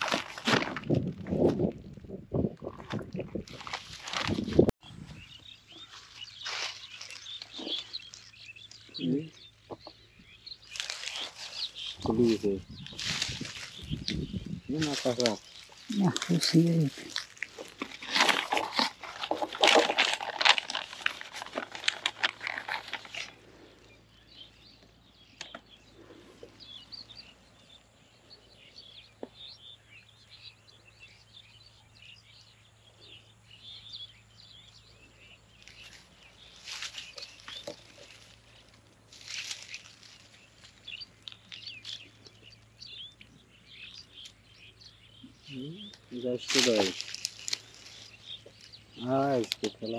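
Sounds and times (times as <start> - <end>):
loud rustling and scraping: 0.0 - 1.0, 14.8 - 23.6
birds chirping faintly: 0.0 - 49.9.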